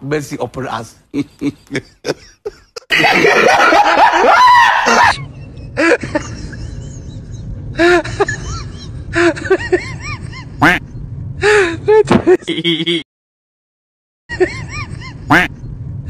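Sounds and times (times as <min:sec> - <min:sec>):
people laughing: 0:01.1 - 0:10.5, 0:12.0 - 0:13.0.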